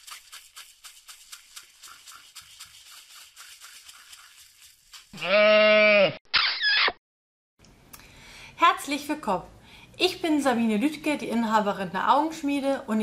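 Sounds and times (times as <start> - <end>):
sheep bleating: 5.2 - 6.2.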